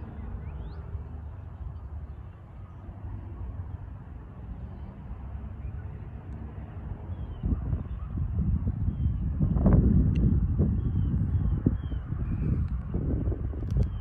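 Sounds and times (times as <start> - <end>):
diesel locomotives rumbling: 0.0 - 2.0.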